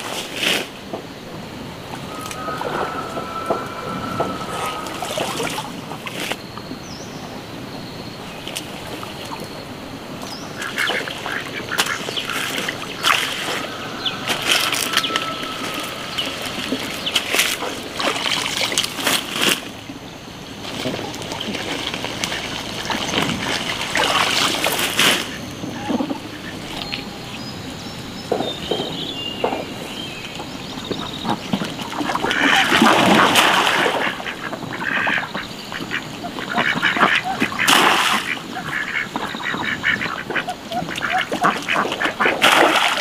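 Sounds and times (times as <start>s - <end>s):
water splashing: 36.6s - 39.0s, 41.0s - 43.0s.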